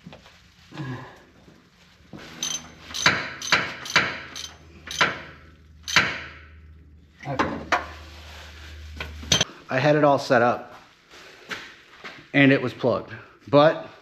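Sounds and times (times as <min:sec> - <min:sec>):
screwdriver clinking on metal: 0:02.3 - 0:05.2, 0:05.8 - 0:06.2.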